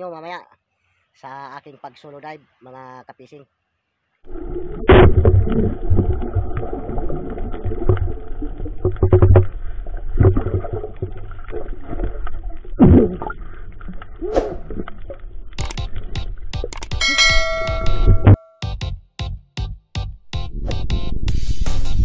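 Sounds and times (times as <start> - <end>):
muffled underwater rumble: 4.3 - 16.5
underwater knocks and gurgles: 4.3 - 16.7.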